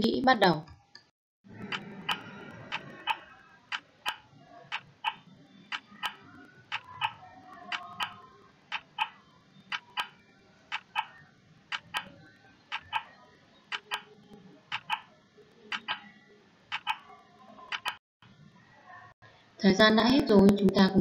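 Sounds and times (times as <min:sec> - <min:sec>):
clock ticking: 0:01.6 - 0:14.1, 0:14.7 - 0:15.1, 0:15.7 - 0:16.1, 0:16.7 - 0:17.1, 0:17.7 - 0:18.0.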